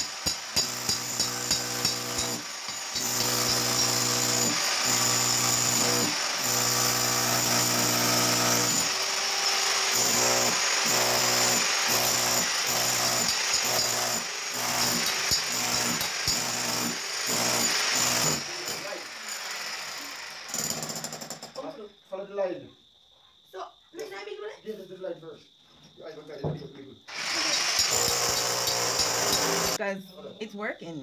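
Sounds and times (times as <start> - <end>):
jackhammer chiselling concrete: 0.0 - 21.5, 27.1 - 29.8.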